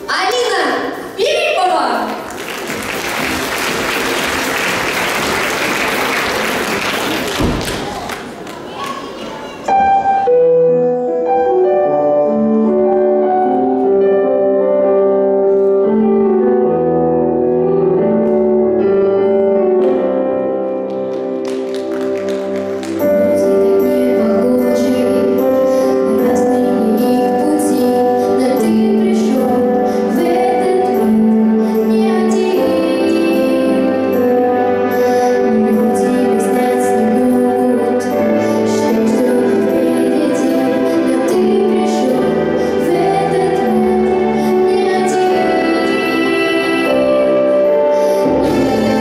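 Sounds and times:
piano backing music: 9.6s - 49.0s
girl singing: 23.1s - 34.3s, 34.9s - 49.0s.

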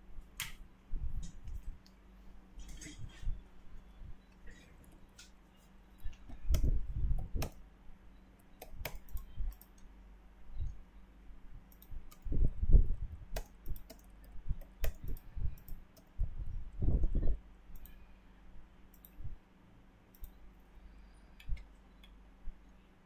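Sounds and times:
keyboard key presses: 6.0s - 7.6s, 8.5s - 9.9s, 13.3s - 16.1s
mouse clicks: 6.0s - 7.6s, 8.4s - 9.9s, 11.7s - 12.4s, 13.3s - 16.1s, 17.7s - 18.0s, 18.9s - 19.2s, 20.1s - 20.4s.

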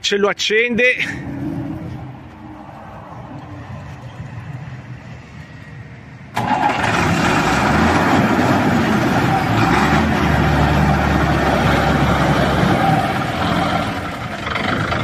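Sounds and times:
diesel truck engine starting: 6.1s - 15.0s.

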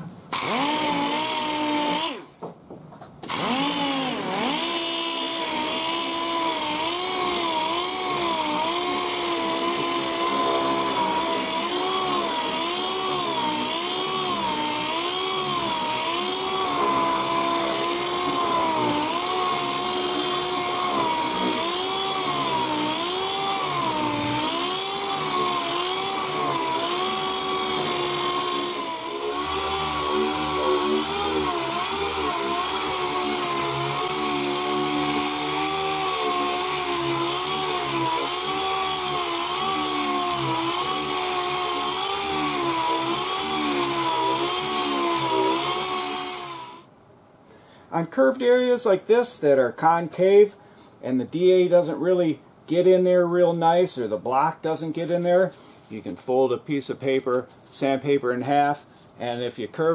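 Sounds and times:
pneumatic sander whining: 0.3s - 2.4s, 3.2s - 46.9s.

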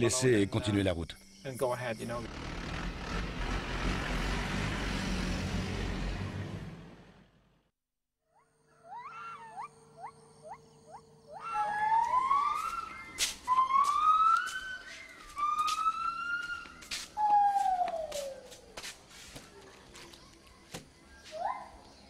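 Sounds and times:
animal calls rising: 8.3s - 18.7s.

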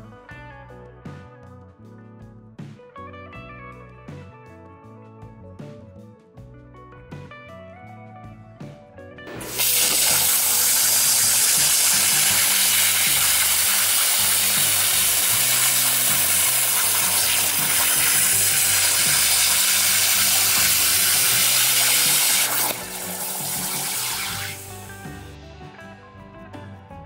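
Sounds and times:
background music: 0.0s - 27.0s
plasma cutter hissing: 9.4s - 24.8s.

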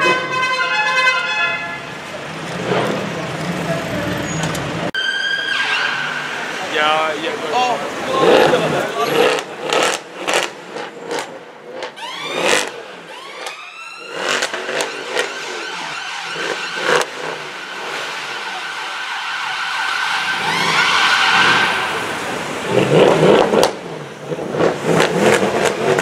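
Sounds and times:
sports car engines revving: 1.9s - 5.0s, 5.9s - 26.0s
car revving as it pulls past: 20.2s - 26.0s.

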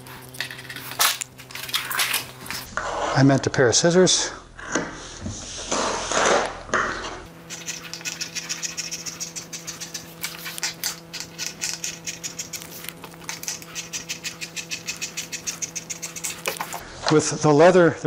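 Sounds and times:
steady low hum: 0.0s - 18.0s
scissors snipping leather: 7.5s - 16.8s.

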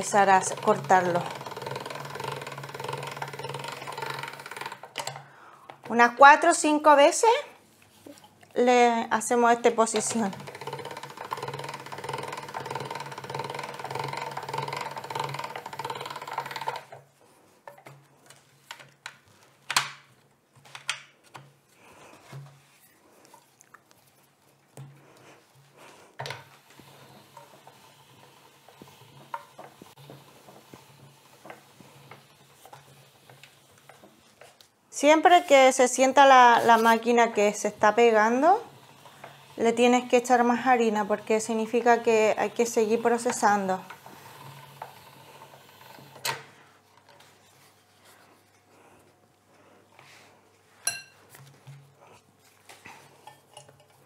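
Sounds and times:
pasta machine clicking: 0.0s - 6.0s, 9.8s - 18.0s, 26.2s - 34.6s, 36.1s - 47.2s
pasta dough sheet rubbing: 21.7s - 53.2s.

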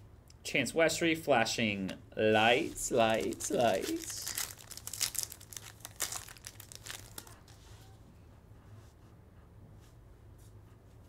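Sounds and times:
cards rustling: 2.4s - 7.6s
foil wrapper tearing and crinkling: 2.9s - 7.6s.

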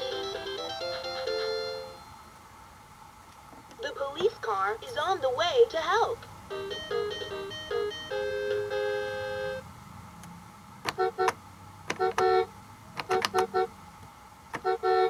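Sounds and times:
toy playing electronic tunes: 0.0s - 2.1s, 6.5s - 9.6s.

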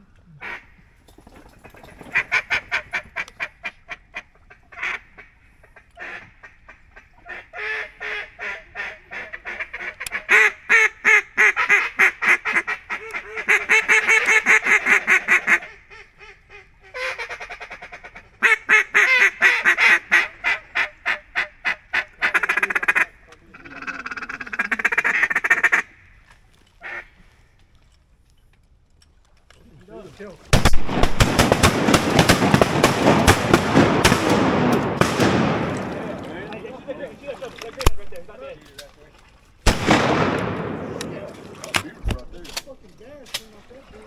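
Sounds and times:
duck calls quacking: 0.3s - 0.8s, 1.6s - 26.1s, 26.8s - 27.2s.

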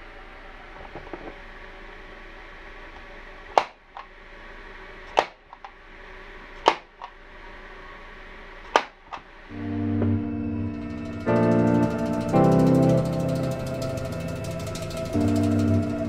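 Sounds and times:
staple gun firing: 5.2s - 5.4s, 6.6s - 7.1s, 8.7s - 9.0s.

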